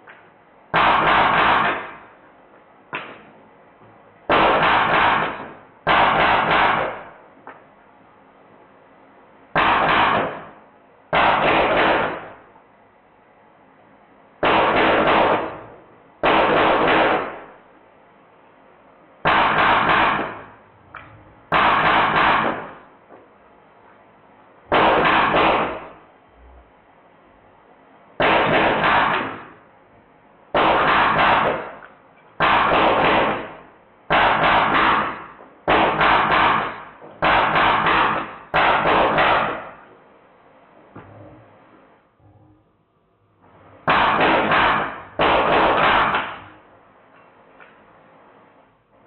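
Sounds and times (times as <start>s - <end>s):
air gun full-auto bursts: 0.7s - 2.0s, 4.3s - 7.2s, 9.6s - 12.4s, 14.4s - 17.5s, 19.2s - 20.6s, 21.5s - 22.8s, 24.7s - 26.0s, 28.2s - 29.6s, 30.6s - 31.8s, 32.4s - 39.8s, 43.8s - 46.6s.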